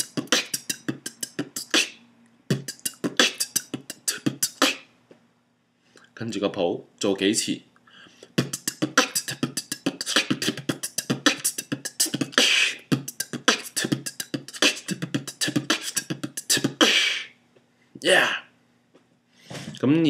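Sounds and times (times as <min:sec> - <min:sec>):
beatboxing: 0:00.0 - 0:04.9, 0:08.2 - 0:17.4.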